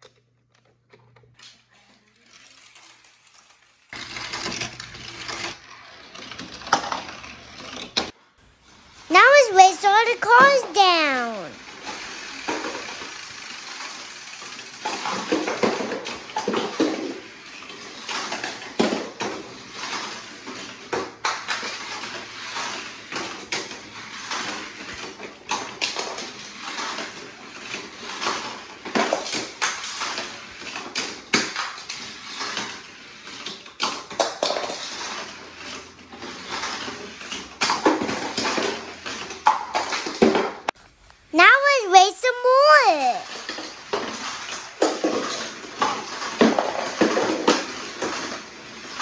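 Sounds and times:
toy cars clattering down plastic track: 0:02.2 - 0:07.8.

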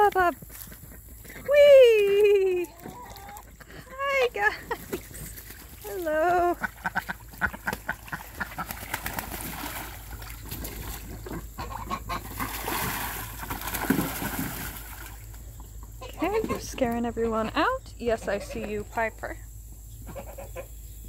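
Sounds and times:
ducks splashing in water: 0:01.3 - 0:17.7
goose and duck calls: 0:06.5 - 0:08.8, 0:11.2 - 0:12.5, 0:20.1 - 0:20.8
goose honking: 0:11.6 - 0:12.4.

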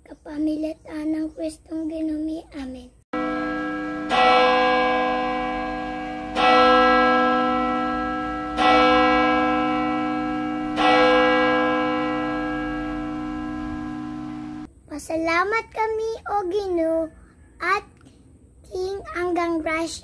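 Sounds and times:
bell ringing: 0:03.2 - 0:14.7.

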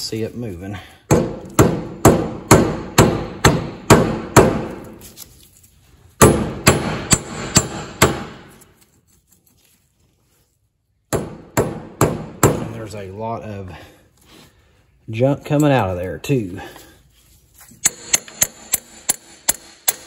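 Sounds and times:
hammer striking metal hub: 0:17.8 - 0:20.0.

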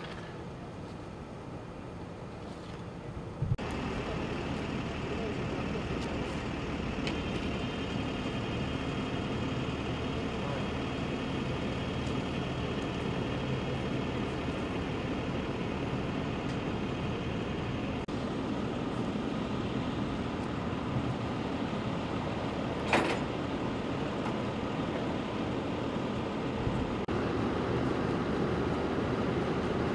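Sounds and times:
diesel engine idling: 0:03.6 - 0:29.9.

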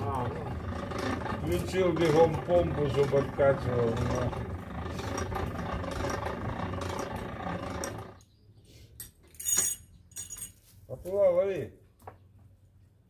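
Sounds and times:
winch running: 0:00.0 - 0:08.3
short metallic rattle: 0:09.3 - 0:10.6.

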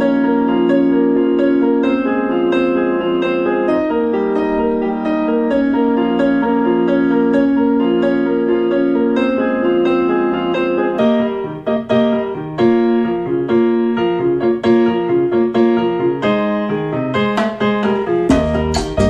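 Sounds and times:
piano music over speakers: 0:00.0 - 0:19.0
latin music with deep bass: 0:17.2 - 0:19.0.

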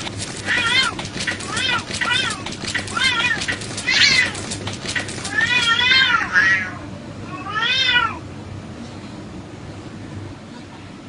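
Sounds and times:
scuffling clicks: 0:00.0 - 0:06.0
cats yowling: 0:00.0 - 0:08.2.

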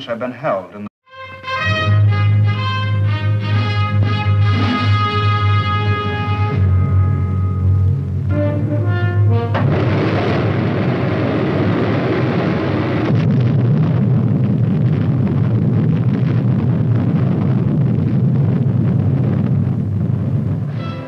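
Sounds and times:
dramatic music notes: 0:01.1 - 0:10.8, 0:20.7 - 0:21.0
explosion blast rumble: 0:04.0 - 0:08.3, 0:09.5 - 0:21.0.

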